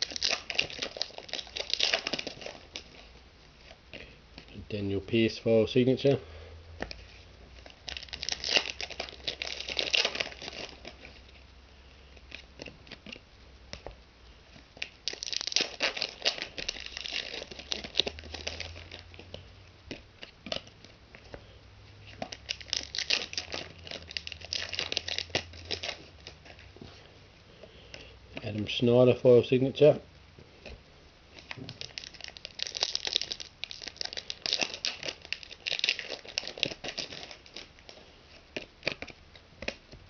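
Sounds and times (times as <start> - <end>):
foil wrappers crinkling and tearing: 0.0 - 5.3, 6.8 - 11.4, 14.5 - 21.4, 22.0 - 27.1, 30.6 - 40.0.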